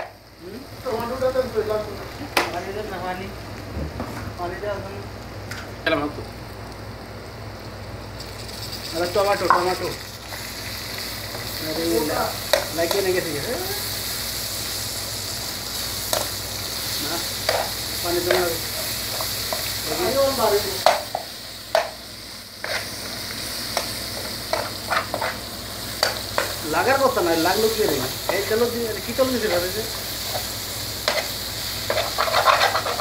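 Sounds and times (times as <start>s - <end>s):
vegetables sizzling in frying pan: 0.0s - 33.0s
spatula scraping pan: 23.8s - 25.4s, 30.3s - 33.0s.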